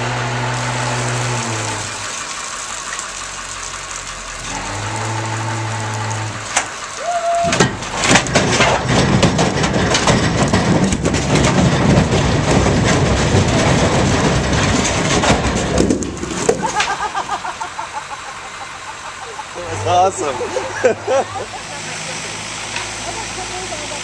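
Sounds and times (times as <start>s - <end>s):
boulders crashing onto ground: 6.4s - 17.0s.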